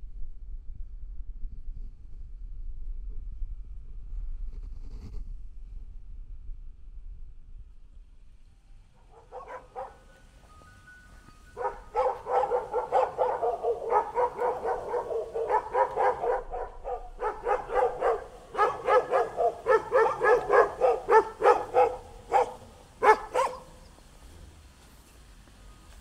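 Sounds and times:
dog barking rapidly: 9.0 - 10.2, 11.6 - 23.9.

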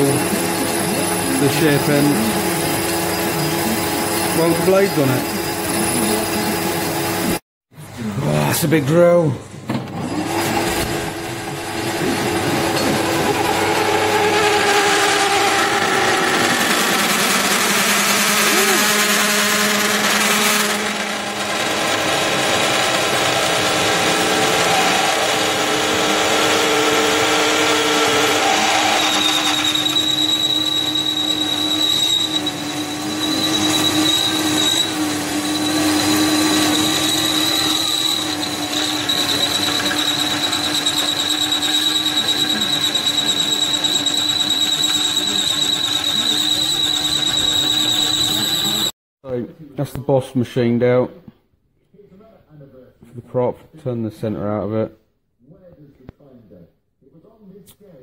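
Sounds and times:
metal lathe drilling: 0.0 - 7.4, 10.2 - 48.9
shrill drill tones: 0.0 - 7.4, 10.1 - 49.0.

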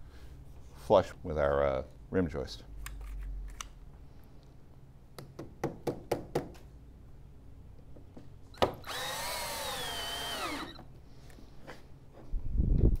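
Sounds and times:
cordless drill driving screw: 8.6 - 10.9.

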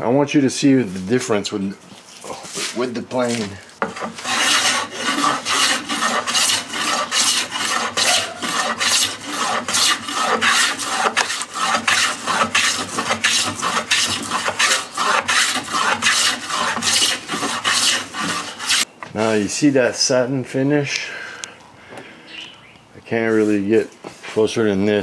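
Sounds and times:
hand plane rasping on wood: 3.8 - 18.9.

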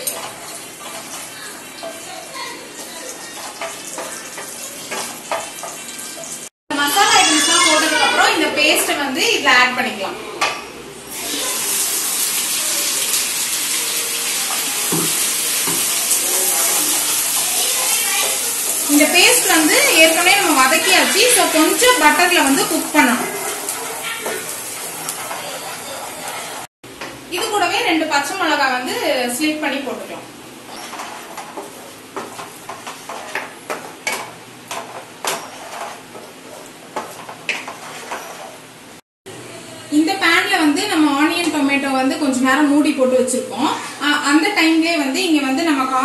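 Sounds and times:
wooden spatula scraping a pan: 0.0 - 5.8, 19.3 - 26.7, 30.6 - 38.7
paste sizzling in butter: 11.1 - 26.7.

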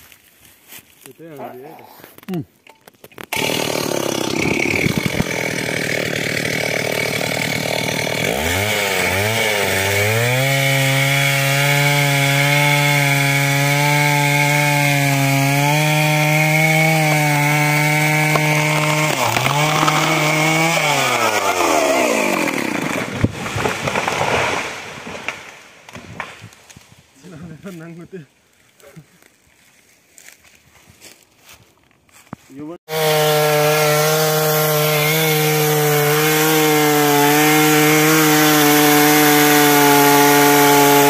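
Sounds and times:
chainsaw cutting tree trunk: 3.2 - 26.4, 32.8 - 41.0.

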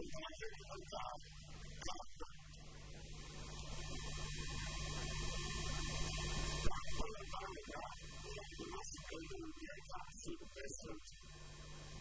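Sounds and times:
electrical mains hum: 0.0 - 12.0
man talking: 6.7 - 11.1.

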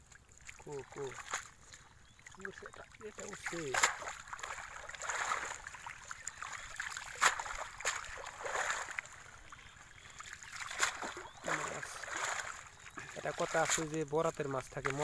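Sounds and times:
water splashing off a net: 2.4 - 9.3, 10.2 - 14.0.

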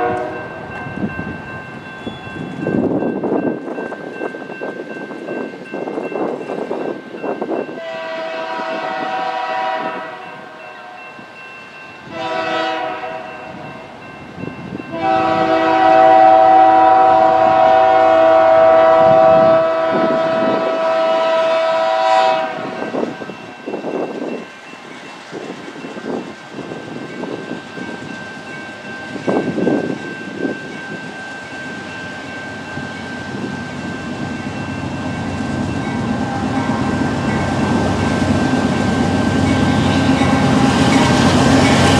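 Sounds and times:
locomotive air horn blasts: 0.0 - 0.5, 7.8 - 11.0, 12.1 - 13.4, 14.9 - 23.2
train rumble: 0.0 - 41.9.

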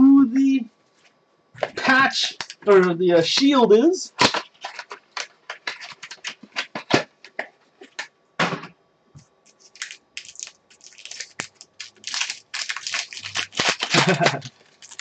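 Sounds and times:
foil wrapper crinkling: 4.2 - 7.0, 9.5 - 15.0
card rustling: 4.2 - 8.1, 9.5 - 15.0.

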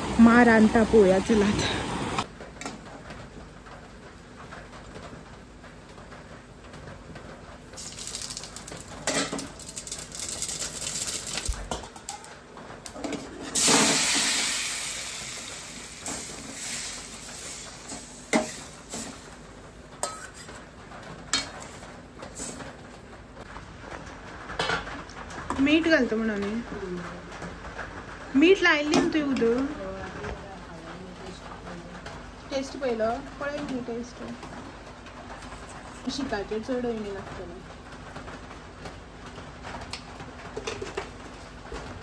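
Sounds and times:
seeds sizzling in hot oil: 7.8 - 12.3, 13.5 - 20.6, 21.3 - 22.6
metal spoon scraping pan: 20.0 - 20.6.

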